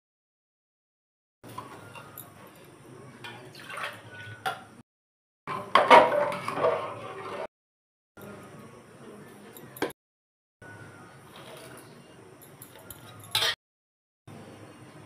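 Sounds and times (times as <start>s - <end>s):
ladle stirring and splashing: 1.5s - 4.3s
water poured into metal pot: 3.2s - 4.4s
metal clinks on pot: 12.4s - 13.6s.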